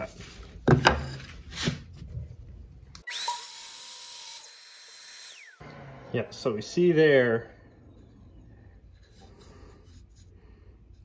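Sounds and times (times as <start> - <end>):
miter saw cutting wood: 3.1 - 6.3.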